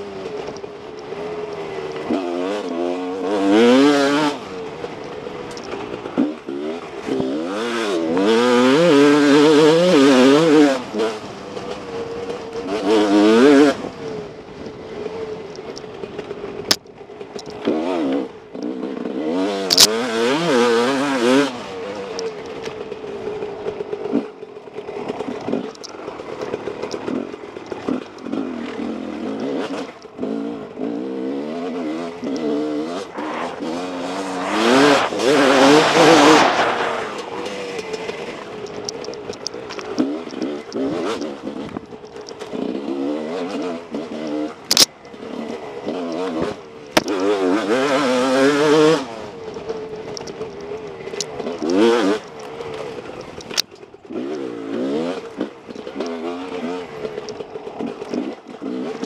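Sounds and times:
dirt bike engine revving: 0.0 - 16.7, 17.5 - 59.0
sharp clicks: 25.4 - 28.4, 34.4 - 42.6, 44.6 - 45.2, 49.5 - 54.5.

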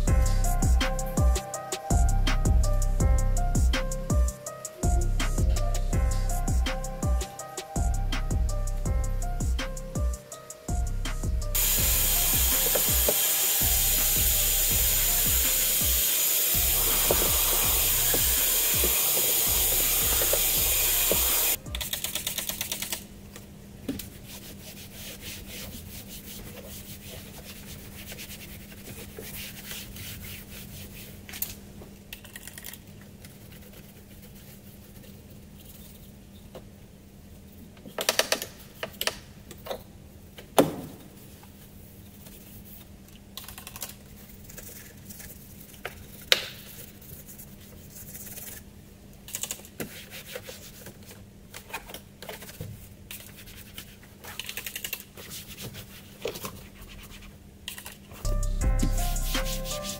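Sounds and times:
brush scrubbing plastic trim: 11.6 - 15.8, 16.6 - 21.6, 24.0 - 31.5, 32.4 - 35.9, 42.1 - 48.7, 52.2 - 59.9
vacuum cleaner running: 11.6 - 21.6.

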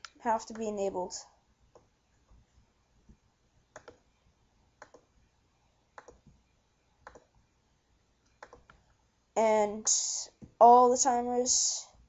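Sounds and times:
computer mouse clicking: 3.7 - 4.0, 4.8 - 5.1, 6.0 - 6.4, 7.0 - 7.3, 8.2 - 8.9.

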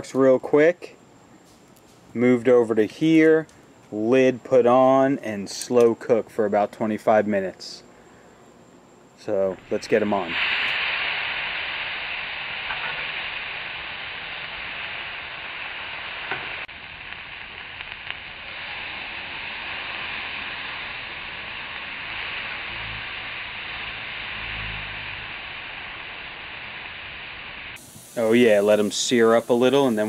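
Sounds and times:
meat sizzling on a grill: 9.7 - 30.0.

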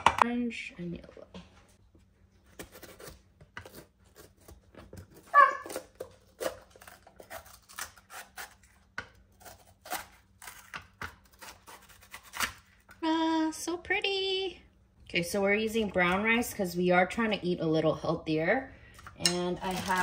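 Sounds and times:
knife slicing bell pepper: 2.5 - 12.6.

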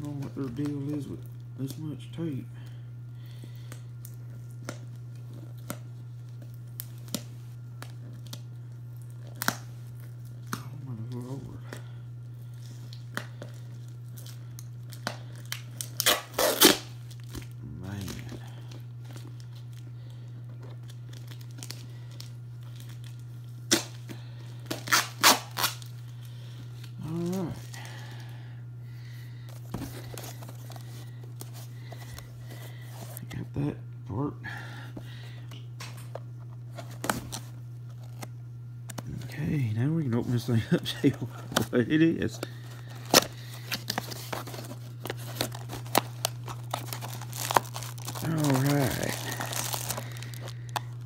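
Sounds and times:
steady low hum: 0.0 - 51.0
packing tape ripping: 12.6 - 18.4, 20.8 - 26.0, 40.8 - 51.0
cardboard box being opened: 43.0 - 50.5.

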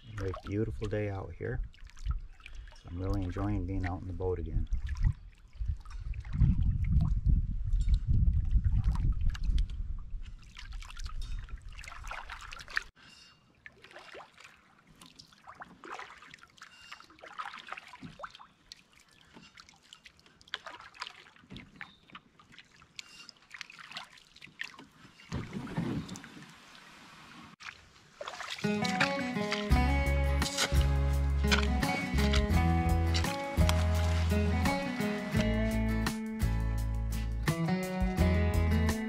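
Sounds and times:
water lapping along hull: 0.0 - 35.7
wind rumble on microphone: 4.3 - 12.0
paddle strokes: 10.4 - 36.2
canoe scraping onto shore: 28.2 - 35.8.

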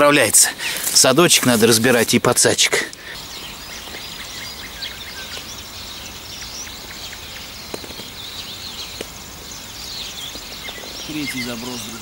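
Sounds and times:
songbirds chirping and singing: 0.0 - 12.0
steady outdoor hiss: 0.0 - 12.0.

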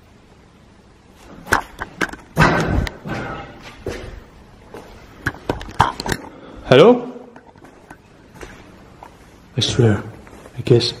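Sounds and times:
clattering bang: 1.4 - 4.2
sharp knocks and thuds: 2.1 - 4.3.

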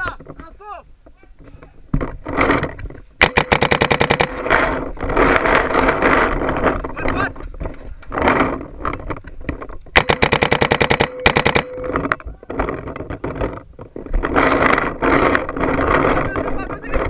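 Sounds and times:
paintball marker firing: 3.2 - 6.2, 9.9 - 12.1
steady tone: 10.0 - 12.2.

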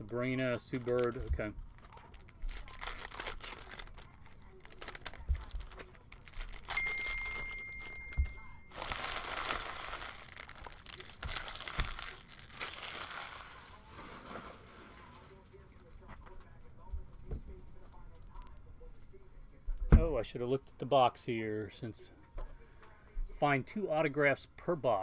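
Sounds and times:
foil wrapper tearing and crinkling: 0.0 - 15.4
thin high tone: 6.7 - 9.8.

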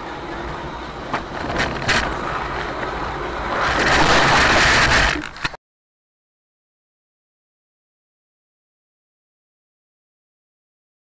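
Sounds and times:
car tyre noise on wet road: 0.0 - 5.6
loud rushing noise: 0.0 - 5.6.

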